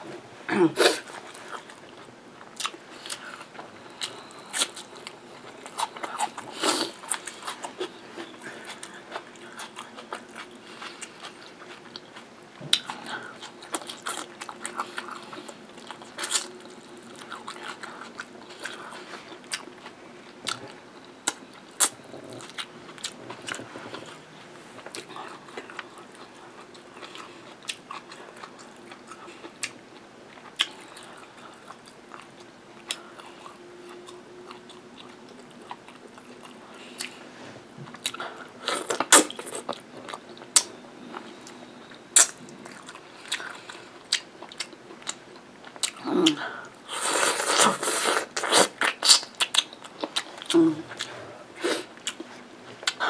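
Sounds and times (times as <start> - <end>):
chewing and biting food: 37.8 - 51.1.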